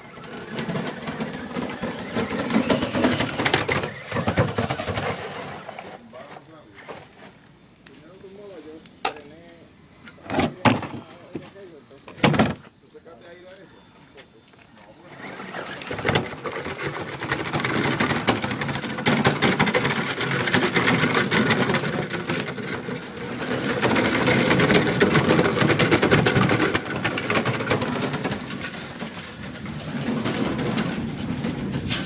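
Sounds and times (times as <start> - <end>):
electric motor and gears whirring: 0.0 - 7.8.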